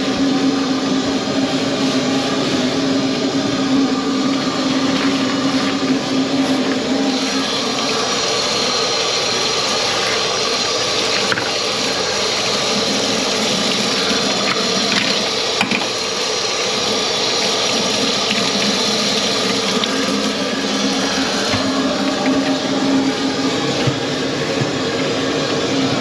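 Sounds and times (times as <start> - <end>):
hands wringing cloth: 4.2 - 15.5
tap running into steel sink: 11.0 - 11.7, 14.4 - 16.0.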